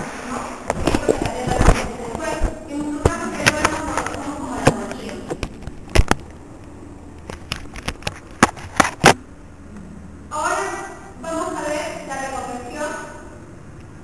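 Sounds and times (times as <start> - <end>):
sharp clicks and knocks: 0.7 - 9.2.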